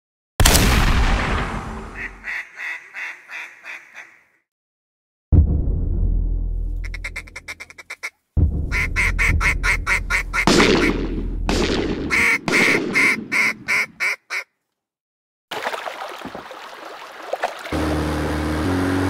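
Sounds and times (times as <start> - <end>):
duck quacking: 2.0 - 4.4, 6.8 - 11.0, 12.1 - 14.5
low rumble: 5.4 - 7.0
water splashing while wading: 15.5 - 18.3.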